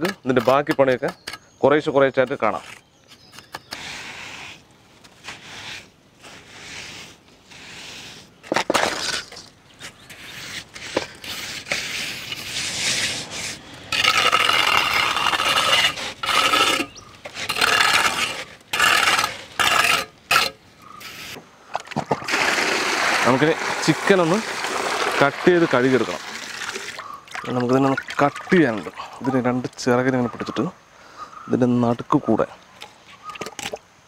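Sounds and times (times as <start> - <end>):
trowel scraping wet mortar: 0.0 - 1.4, 2.2 - 21.4, 22.0 - 29.0.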